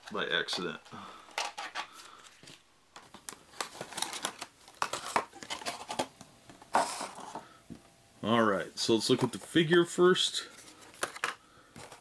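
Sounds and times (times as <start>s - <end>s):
plastic packaging crackling: 3.0s - 6.1s.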